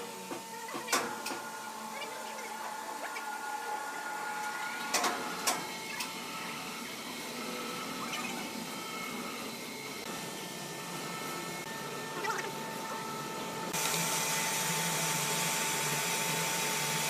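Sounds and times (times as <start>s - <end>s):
sawmill machinery hum and whine: 0.0s - 17.0s.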